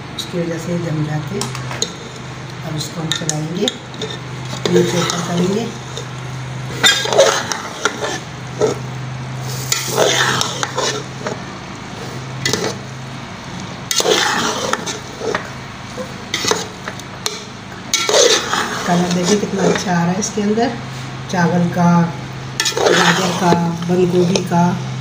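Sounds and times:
metal skimmer scraping a pot: 0:06.7 - 0:08.8, 0:09.6 - 0:11.1, 0:13.9 - 0:15.4, 0:16.3 - 0:19.9, 0:22.6 - 0:24.4.

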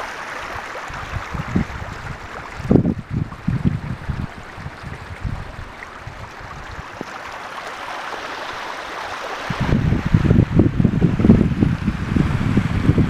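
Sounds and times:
rainwater rushing down driveway: 0:00.0 - 0:13.0
wind rumbling on microphone: 0:00.8 - 0:07.3, 0:09.3 - 0:13.0.

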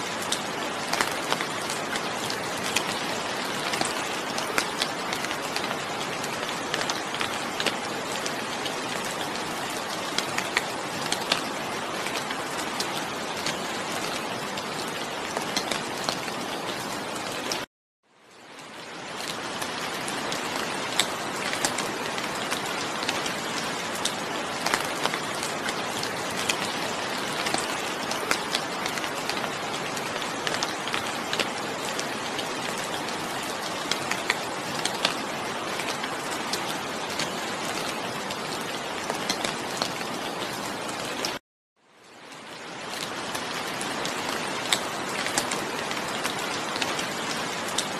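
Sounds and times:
rain drops ticking on a surface: 0:00.0 - 0:47.9.

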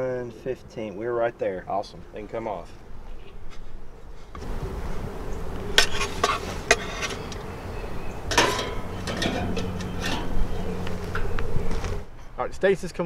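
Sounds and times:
metal tongs clinking on grill grate: 0:08.3 - 0:11.3.

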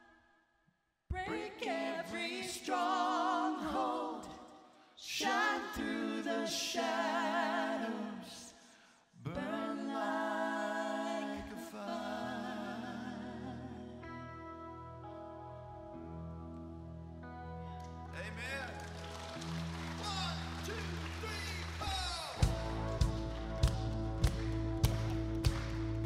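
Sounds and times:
worship singers singing: 0:01.1 - 0:14.2
soft sustained chords: 0:13.2 - 0:21.0.

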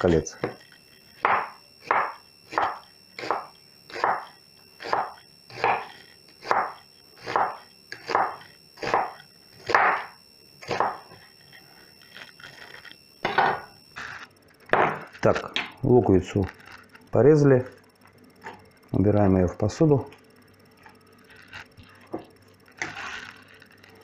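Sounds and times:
knife slicing onion on wooden board: 0:01.2 - 0:11.2.

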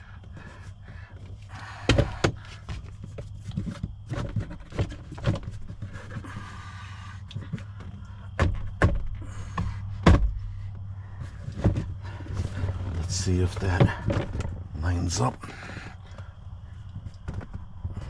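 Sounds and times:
person breathing heavily: 0:00.0 - 0:02.8, 0:05.8 - 0:08.4, 0:09.1 - 0:13.0, 0:15.4 - 0:16.9
plastic panels knocking and clicking: 0:01.6 - 0:06.5, 0:07.3 - 0:10.5, 0:11.2 - 0:14.6.

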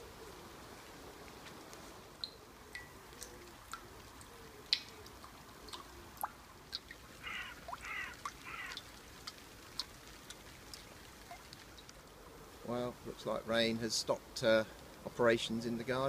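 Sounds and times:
water drops plinking: 0:02.2 - 0:03.9, 0:04.7 - 0:08.9
bird calling: 0:07.2 - 0:08.8.

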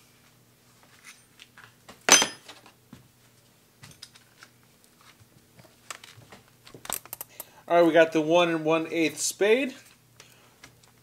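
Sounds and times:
metal tool clattering on workbench: 0:02.1 - 0:02.6.

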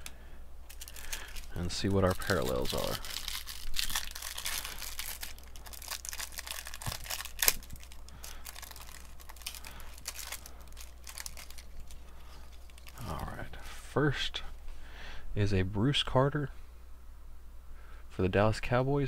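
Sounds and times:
plastic wrapping crinkling and tearing: 0:00.7 - 0:13.4
sharp plastic crack: 0:02.3 - 0:11.6.

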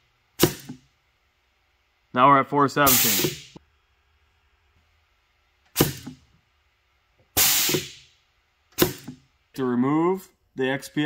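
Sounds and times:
hissing air blasts: 0:02.8 - 0:03.6, 0:07.4 - 0:08.1.

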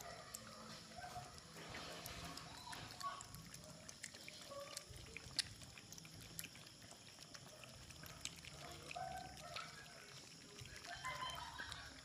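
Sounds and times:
puppies lapping milk: 0:00.0 - 0:12.0.

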